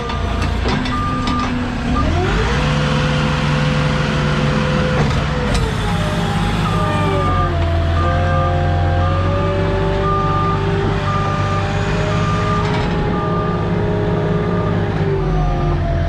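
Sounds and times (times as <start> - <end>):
forklift engine revving: 0.0 - 16.0
reversing beeper beeps: 0.9 - 2.5, 6.6 - 15.6.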